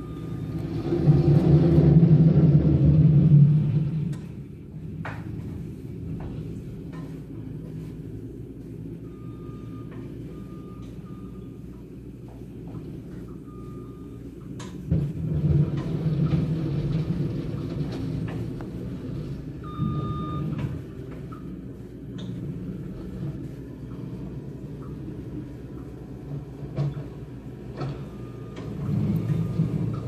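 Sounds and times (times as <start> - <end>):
loader engine rumbling: 0.0 - 30.0
short beep: 19.6 - 20.6.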